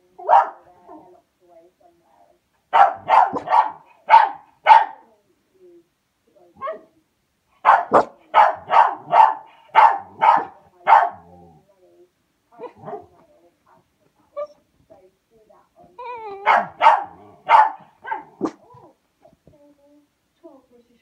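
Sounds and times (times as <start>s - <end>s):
dog barking: 0.2s - 0.7s, 2.7s - 5.0s, 7.6s - 11.3s, 16.4s - 18.6s.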